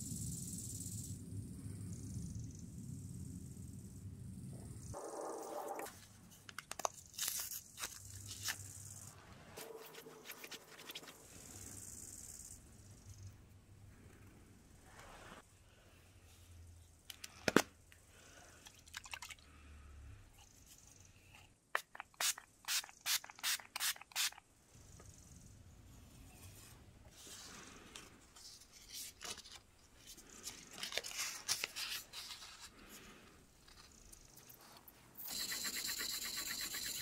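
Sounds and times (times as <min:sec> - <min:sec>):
spray bottle misting: 0:35.2 - 0:37.0
sanding paper rustling: 0:35.3 - 0:37.0.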